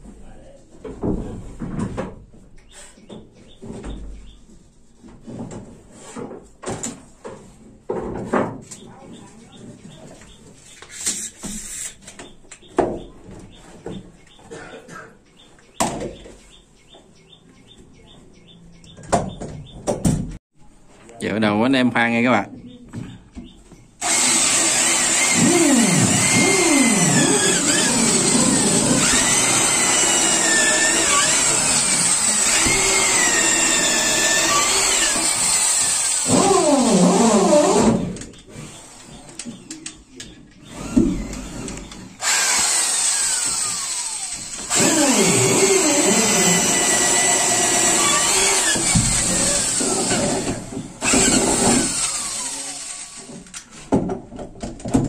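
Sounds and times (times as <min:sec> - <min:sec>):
electric drill boring into wood: 0:24.0 - 0:39.2, 0:40.6 - 0:53.4.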